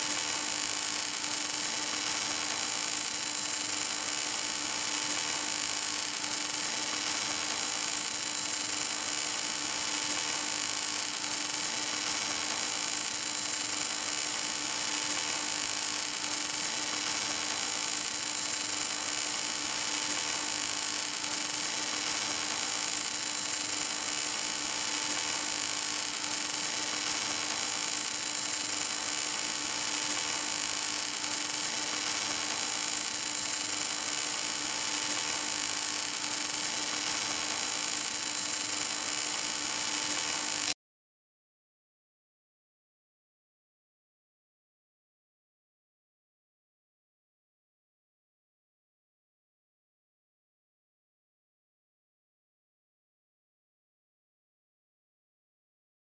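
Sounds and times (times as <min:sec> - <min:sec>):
welding arc hissing: 0:00.0 - 0:40.8.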